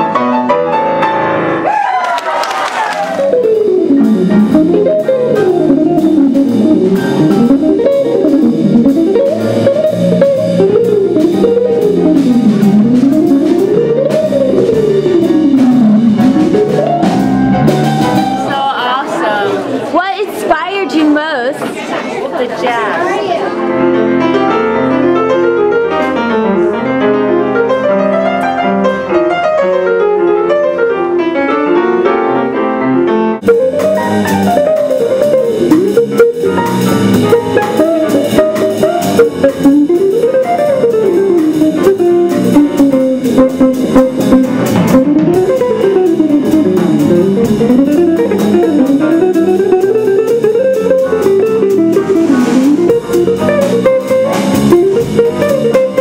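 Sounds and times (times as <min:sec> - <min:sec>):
grand piano: 0:00.0 - 0:56.0
jazz band playing: 0:00.0 - 0:56.0.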